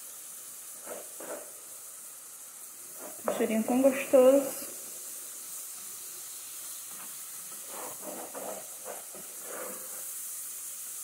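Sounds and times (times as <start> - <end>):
onion sizzling in oil: 0.0 - 11.0
spatula scraping pot bottom: 7.7 - 9.8.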